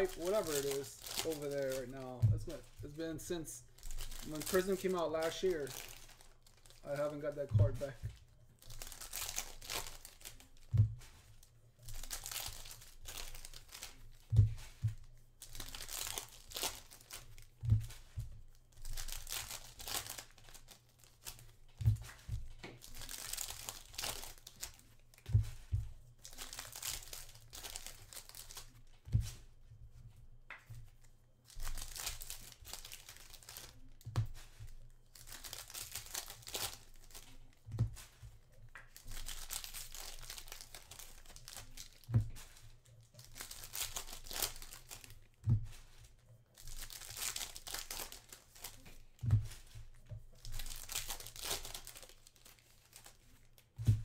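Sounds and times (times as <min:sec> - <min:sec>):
foil wrappers tearing and crinkling: 0:00.0 - 0:14.4, 0:15.3 - 0:25.3, 0:26.2 - 0:28.9, 0:31.5 - 0:37.6, 0:38.9 - 0:45.9, 0:46.6 - 0:53.7.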